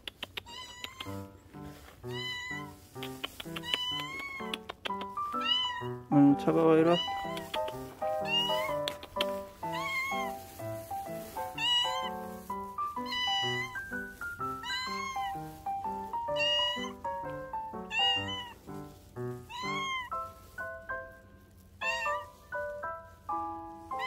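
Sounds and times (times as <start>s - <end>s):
cat meowing: 0.2s - 1.4s, 2.1s - 6.1s, 6.8s - 10.6s, 11.2s - 18.6s, 19.4s - 20.3s, 21.8s - 22.5s
background music: 0.6s - 24.0s.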